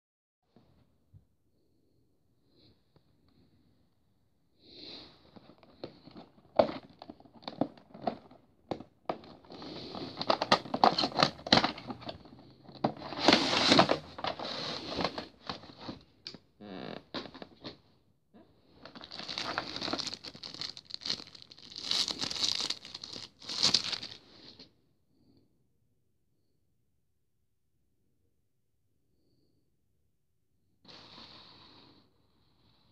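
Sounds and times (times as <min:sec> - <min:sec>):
plastic packaging crinkling: 0:18.8 - 0:24.2.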